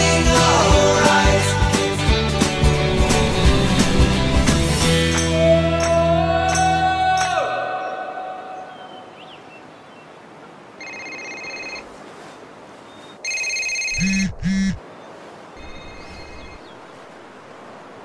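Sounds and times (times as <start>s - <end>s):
telephone ringing: 10.8s - 11.9s, 13.2s - 14.8s
short low buzzes: 14.0s - 14.8s.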